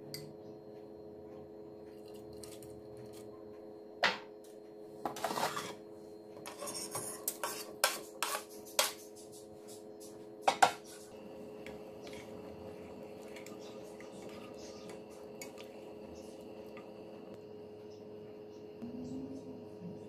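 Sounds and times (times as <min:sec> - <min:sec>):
food scraped into pot: 0:05.1 - 0:05.8, 0:06.4 - 0:09.0
low steady hum: 0:11.0 - 0:20.0.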